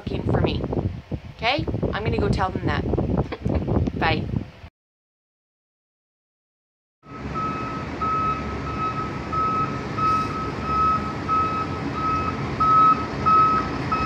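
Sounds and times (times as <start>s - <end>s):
reversing alarm beeping: 7.0s - 14.0s
truck engine running: 7.1s - 14.0s.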